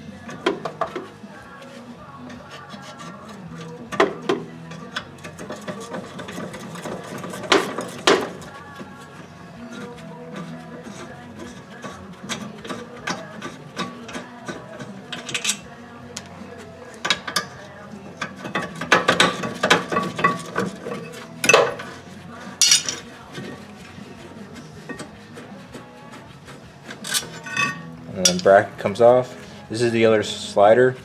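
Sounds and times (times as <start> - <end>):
hand ratchet clicking: 2.3 - 8.9, 9.7 - 16.3, 16.9 - 22.0, 26.8 - 28.5.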